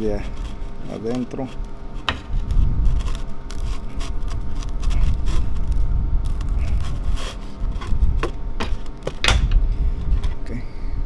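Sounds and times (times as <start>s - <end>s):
low rumble: 2.2s - 8.6s.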